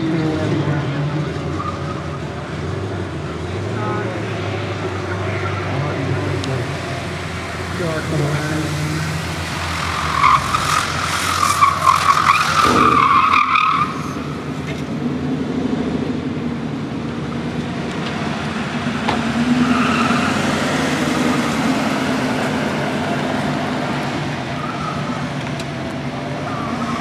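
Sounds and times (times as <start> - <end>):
car engine under load: 0.0 - 27.0
tyres squealing: 5.3 - 14.4.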